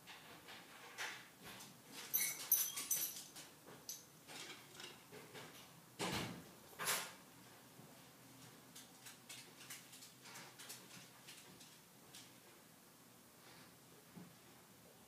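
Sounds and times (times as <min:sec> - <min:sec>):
dog claws clicking on floor: 0:08.4 - 0:12.4.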